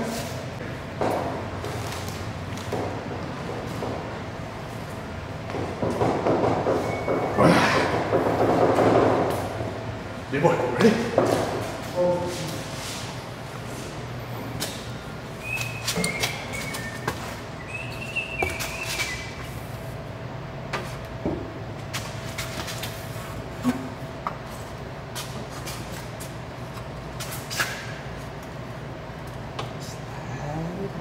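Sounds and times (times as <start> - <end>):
steady hum: 0.0 - 31.0
brief squeaks: 15.4 - 19.4.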